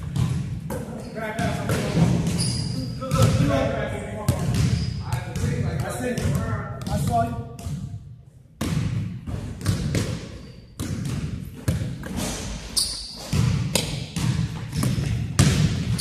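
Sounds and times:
basketball bouncing on gym floor: 0:00.0 - 0:03.6, 0:04.3 - 0:16.0
sneaker squeak: 0:00.2 - 0:03.4, 0:04.6 - 0:05.2, 0:10.2 - 0:11.0, 0:12.1 - 0:14.0.

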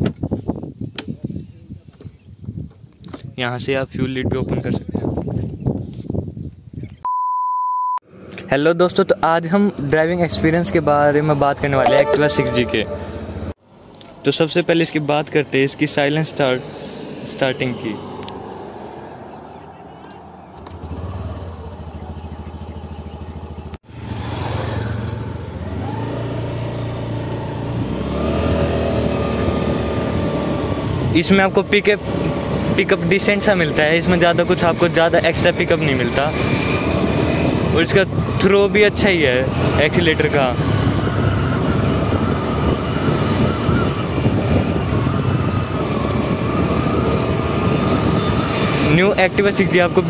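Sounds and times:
wind and road noise: 0:00.0 - 0:07.0, 0:08.0 - 0:11.9, 0:13.1 - 0:50.0
scooter engine idling and revving: 0:16.0 - 0:50.0.

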